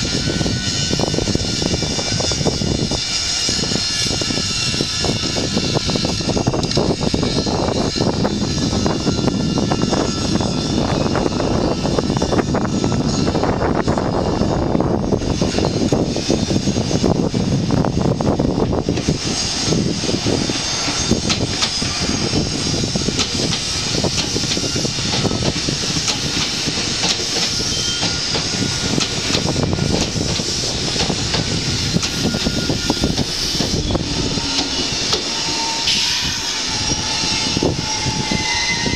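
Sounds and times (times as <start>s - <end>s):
electric train rumble and hiss: 0.0s - 38.9s.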